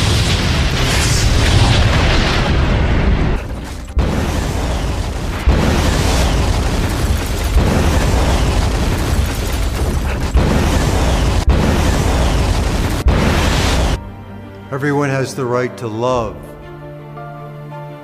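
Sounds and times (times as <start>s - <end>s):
explosion booms: 0.0s - 14.0s.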